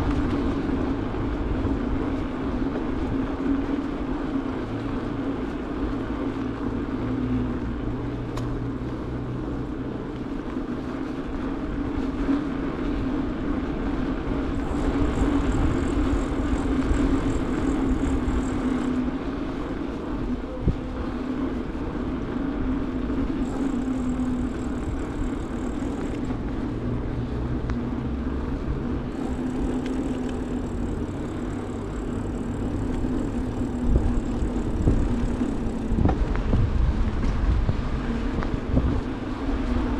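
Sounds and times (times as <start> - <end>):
bicycle tyre rumble: 0.0 - 39.9
wind on microphone: 0.0 - 39.9
faint high whine: 14.0 - 39.9.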